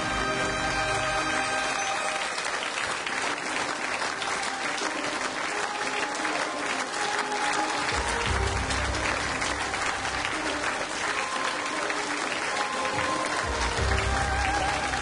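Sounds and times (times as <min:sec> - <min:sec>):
audience applauding: 0:00.0 - 0:15.0
theme music: 0:00.0 - 0:15.0.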